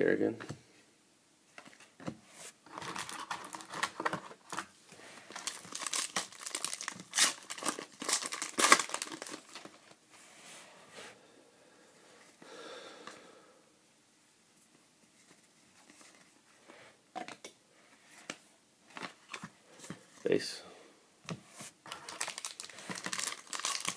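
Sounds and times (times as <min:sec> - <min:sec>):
foil wrapper tearing and crinkling: 0:02.7 - 0:04.6, 0:05.3 - 0:09.9, 0:21.9 - 0:23.9
cards rustling: 0:02.7 - 0:10.0, 0:21.6 - 0:23.9.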